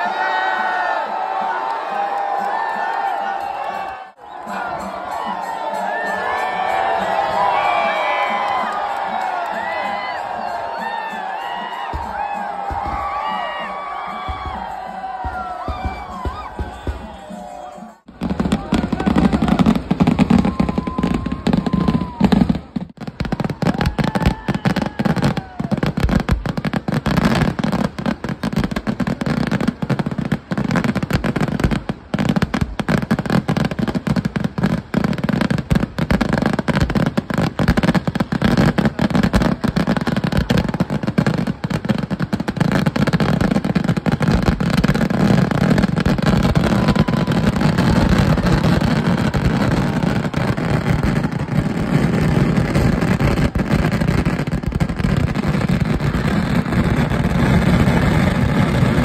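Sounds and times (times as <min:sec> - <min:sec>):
firecracker explosions: 0:04.5 - 0:59.0
heavy rumble of fireworks: 0:10.9 - 0:17.2, 0:18.1 - 0:59.0.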